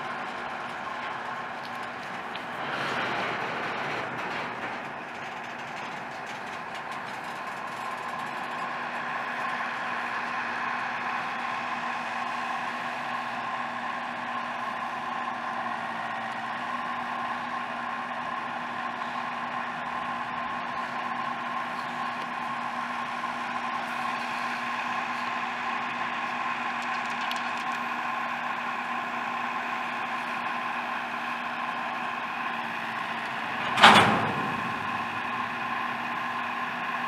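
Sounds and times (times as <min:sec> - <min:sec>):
constant tone: 0:00.0 - 0:37.0
train cars rolling on rails: 0:00.0 - 0:37.0
loud bang: 0:33.3 - 0:36.2.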